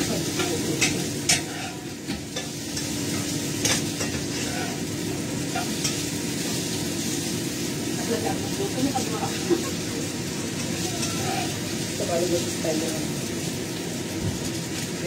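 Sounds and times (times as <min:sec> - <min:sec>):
food sizzling in a wok: 0:00.0 - 0:15.0
utensil clicking on pan: 0:00.3 - 0:04.5.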